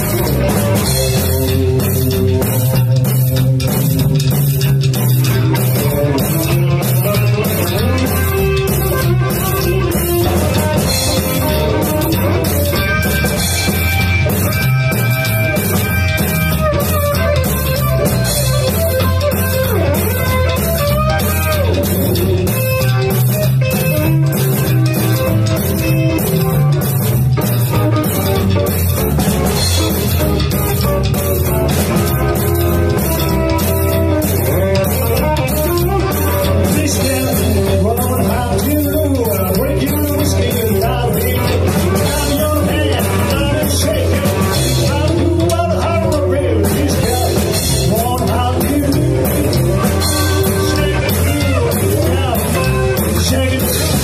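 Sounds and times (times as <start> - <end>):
drum kit steady beat: 0.0 - 54.0
electric guitar: 0.0 - 54.0
upright bass: 0.0 - 54.0
male lead vocal: 35.9 - 54.0.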